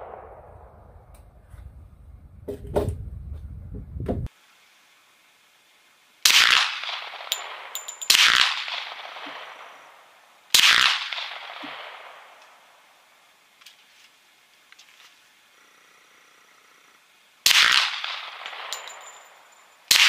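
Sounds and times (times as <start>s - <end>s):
long echo: 0.0s - 1.2s
suppressed pistol shots: 6.2s - 12.6s, 17.4s - 20.0s.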